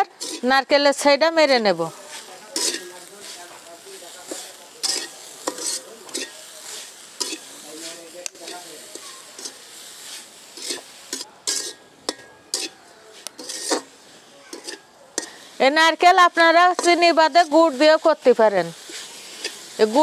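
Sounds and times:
metal spatula scraping a pan: 0.0 - 20.0
spatula clinking against pan: 2.5 - 3.0, 4.3 - 6.4, 7.2 - 7.5, 10.6 - 12.8, 14.5 - 15.5.

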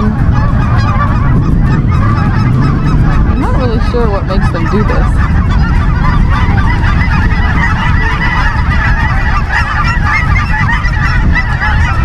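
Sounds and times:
geese honking: 0.0 - 12.0
low rumble: 0.0 - 12.0.

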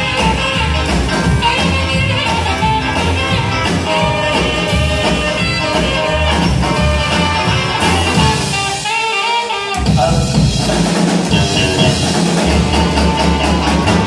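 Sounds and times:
upright double bass: 0.0 - 8.4, 11.3 - 14.0
drum kit: 0.0 - 14.0
electric guitar: 0.0 - 14.0.

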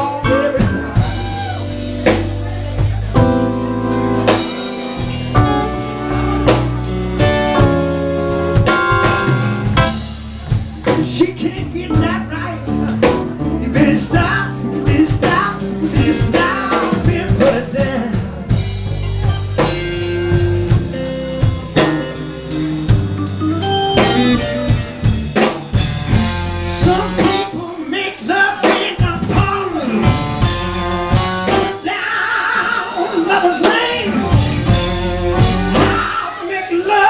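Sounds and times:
live band playing: 0.0 - 37.0
drum hits: 0.4 - 12.2
held electric guitar notes: 17.6 - 27.4.

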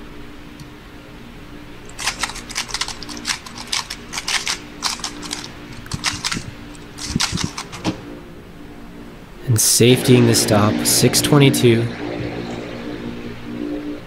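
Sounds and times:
plastic puzzle cube clicking: 1.9 - 8.0.

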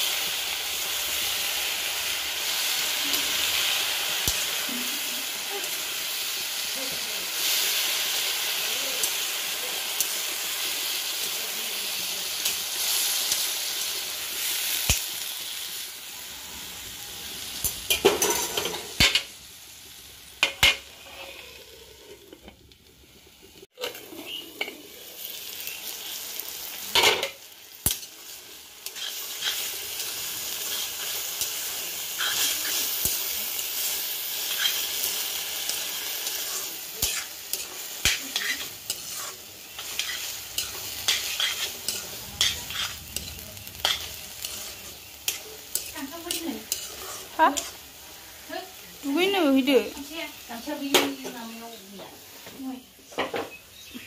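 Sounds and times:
greens sizzling in oil: 0.0 - 54.0
spatula scraping a pan: 28.8 - 33.1, 33.8 - 47.9.

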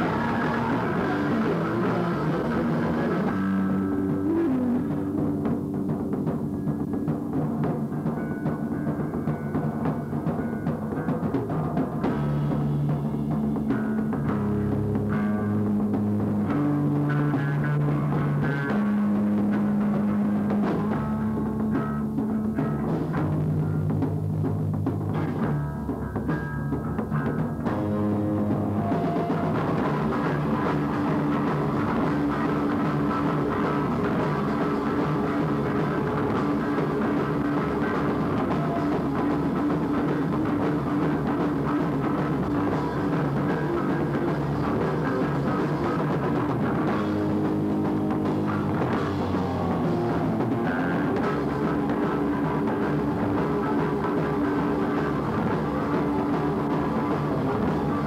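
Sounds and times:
live punk metal band: 0.0 - 58.0.

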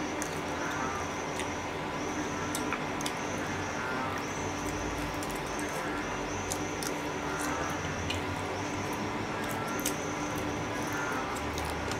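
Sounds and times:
faint steady hum: 0.0 - 11.9.

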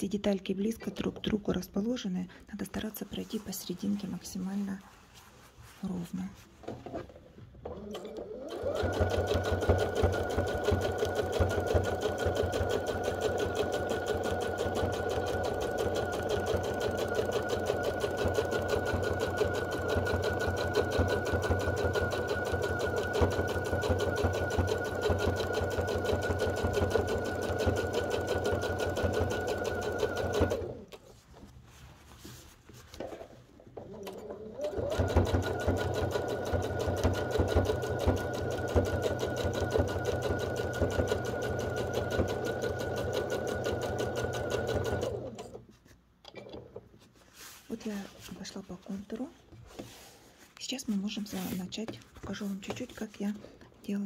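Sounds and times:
sewing machine stitching: 6.6 - 31.0, 33.8 - 45.6.

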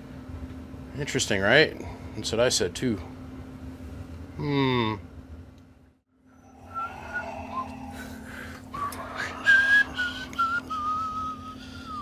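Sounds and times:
steady low hum: 0.0 - 12.0
man whistling a tune: 6.5 - 8.2, 8.8 - 12.0.

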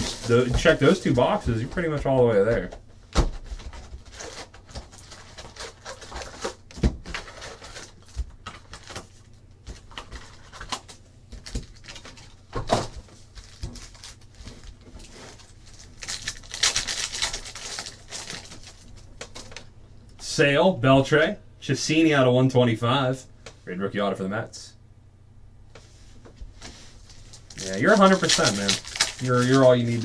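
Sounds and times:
foil wrapper crinkling: 0.0 - 1.6, 4.0 - 12.4, 13.1 - 19.7, 26.9 - 30.0
cardboard and packs clicking and knocking: 0.0 - 19.7, 27.3 - 30.0.

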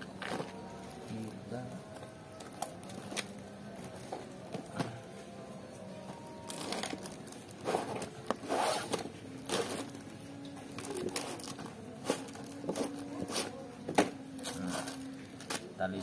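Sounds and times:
plastic wrapping crinkling: 6.4 - 13.6
cardboard sleeve scraping: 7.6 - 9.9.

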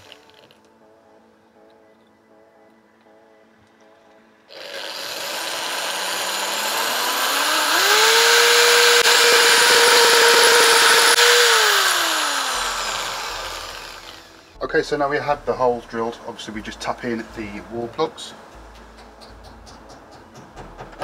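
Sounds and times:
hammer drill boring into brick: 0.0 - 0.6, 4.5 - 14.5.

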